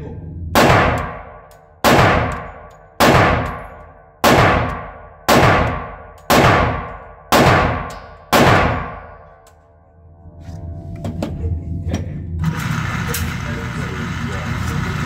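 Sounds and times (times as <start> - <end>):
pistol shots with ringing echo: 0.6 - 9.4.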